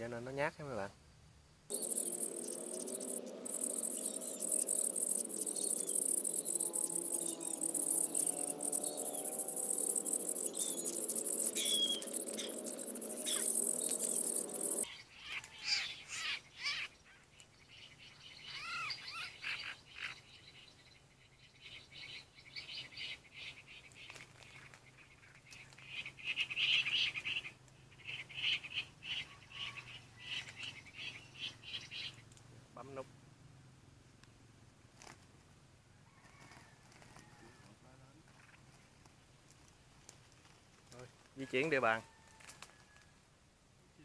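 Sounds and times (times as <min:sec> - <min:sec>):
high insect-like hiss: 0:00.2 - 0:14.9
small birds chirping: 0:01.7 - 0:33.0, 0:38.0 - 0:42.0
rustles and clicks of handling: 0:38.3 - 0:41.4.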